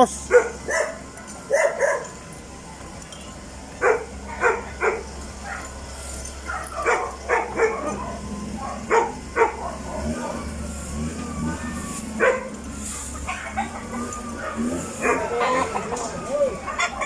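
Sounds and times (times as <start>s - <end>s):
dog barking: 0.3s - 2.1s, 3.8s - 5.7s, 6.4s - 10.4s, 12.2s - 12.5s, 13.3s - 15.4s.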